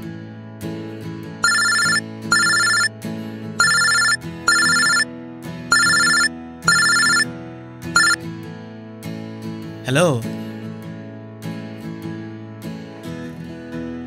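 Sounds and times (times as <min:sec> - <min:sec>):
background music: 0:00.0 - 0:14.0
telephone bell ringtone: 0:01.4 - 0:02.9, 0:03.6 - 0:05.1, 0:05.7 - 0:07.3, 0:08.0 - 0:08.2.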